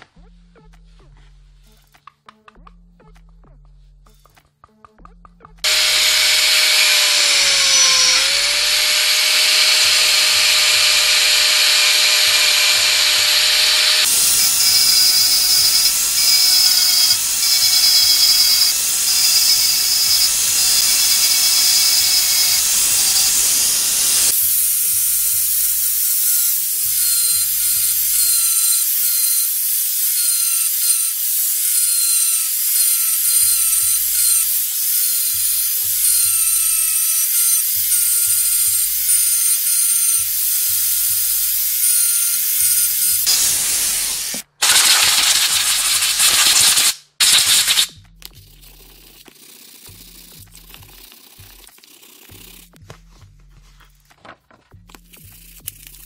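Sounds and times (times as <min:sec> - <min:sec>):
angle grinder whining: 0:05.6 - 0:46.6.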